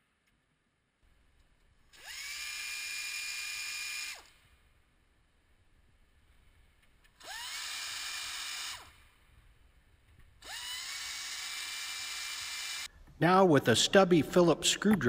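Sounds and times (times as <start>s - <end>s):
air ratchet whining: 1.9s - 4.5s, 7.1s - 9.2s, 10.4s - 12.9s.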